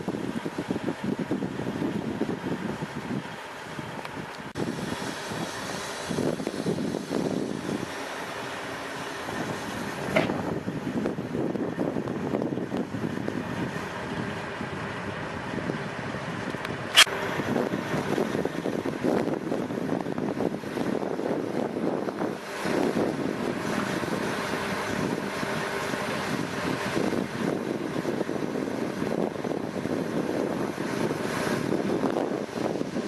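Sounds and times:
diesel engine running: 0.0 - 33.0
wind buffeting microphone: 0.0 - 33.0
sharp click: 16.6 - 17.1.

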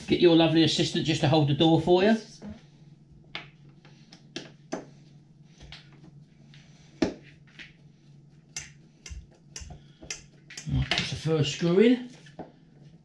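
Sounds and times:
screwdriver clicks and taps: 8.6 - 10.7.

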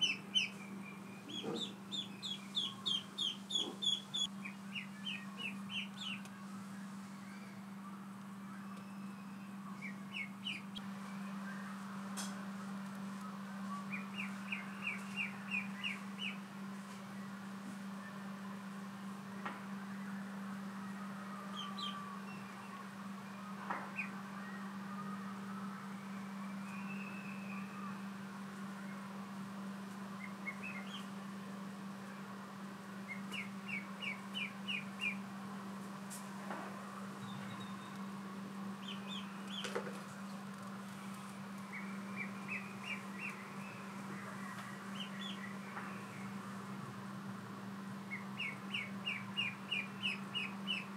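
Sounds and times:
duckling peeping: 0.0 - 6.3, 8.6 - 10.8, 13.8 - 16.4, 21.5 - 22.6, 23.9 - 24.2, 30.2 - 31.1, 33.1 - 35.2, 38.8 - 39.8, 41.7 - 45.6, 48.1 - 50.9.

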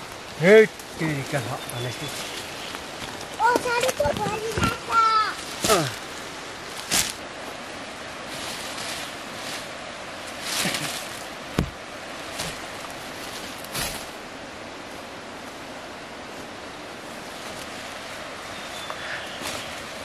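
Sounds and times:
leaves rustling: 0.0 - 20.0
steady background hiss: 0.0 - 20.0.

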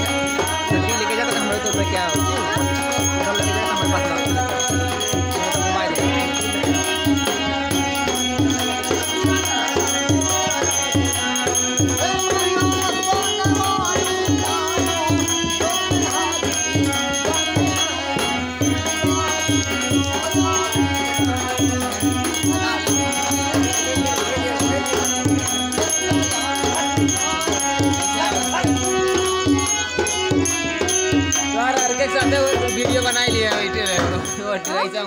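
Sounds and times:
jangling rattle percussion: 0.0 - 35.0
steady drum beat: 0.0 - 35.0.

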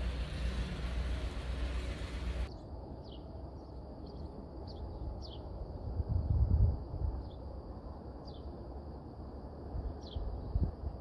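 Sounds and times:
car engine rumbling: 0.0 - 2.5.

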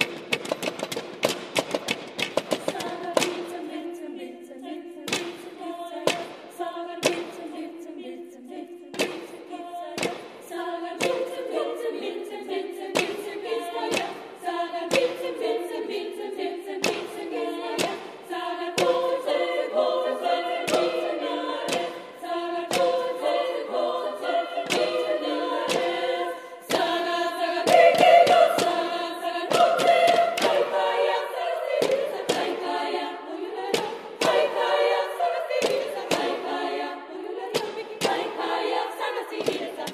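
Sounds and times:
wooden staffs knocking floor: 0.0 - 3.4
women's choir singing: 2.5 - 39.9.

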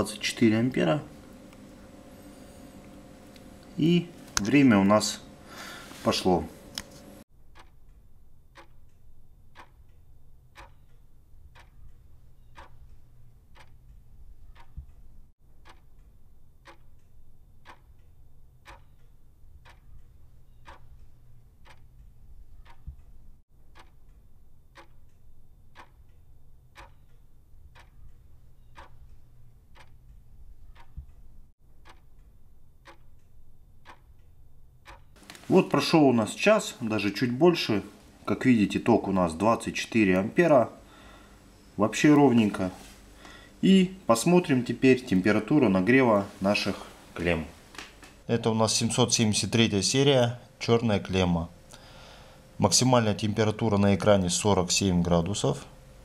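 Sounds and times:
low steady hum: 0.0 - 56.0
steady ticking: 7.3 - 47.3.

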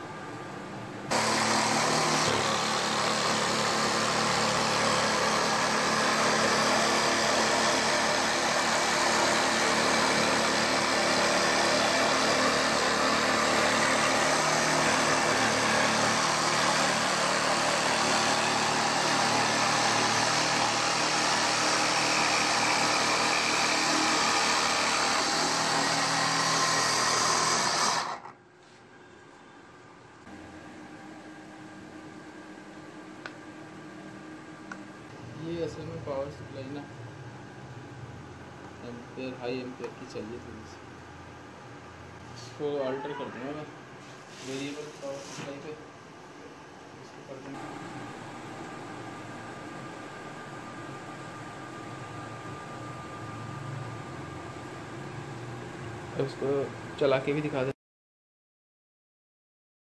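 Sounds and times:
reciprocating saw cutting board: 1.1 - 28.4.

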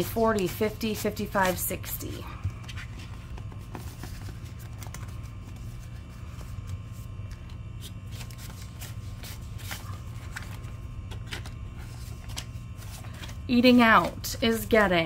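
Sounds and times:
banknotes rustling: 0.0 - 15.0
steady low hum: 0.0 - 15.0
binder page turning: 2.6 - 14.2.

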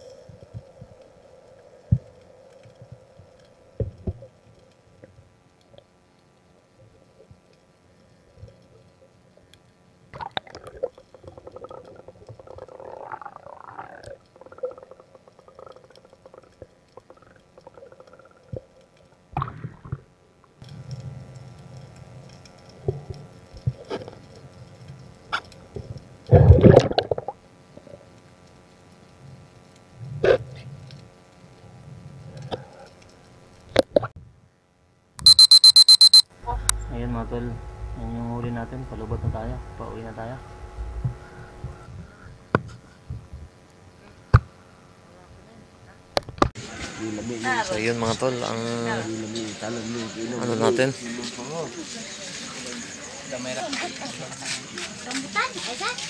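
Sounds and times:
watery bubbling: 10.2 - 18.8.

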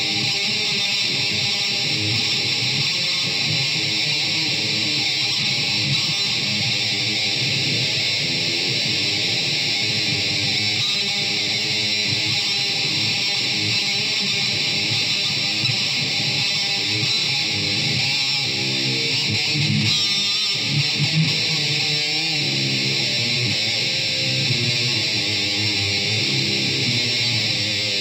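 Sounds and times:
electric guitar playing: 0.0 - 28.0.

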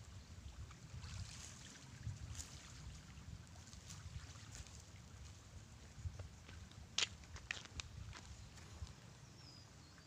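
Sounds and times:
wind rumble on microphone: 0.0 - 9.6.

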